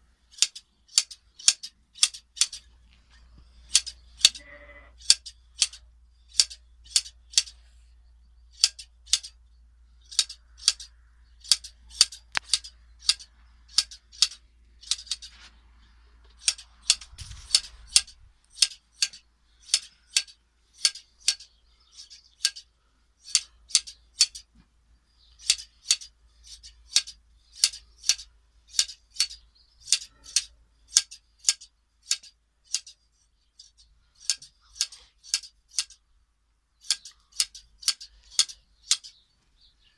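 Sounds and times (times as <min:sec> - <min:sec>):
scissors snipping wool: 0:00.4 - 0:02.7, 0:03.7 - 0:04.4, 0:05.0 - 0:07.6, 0:08.6 - 0:09.4, 0:10.1 - 0:15.4, 0:16.3 - 0:22.6, 0:25.4 - 0:33.0, 0:33.6 - 0:36.0, 0:36.8 - 0:39.2.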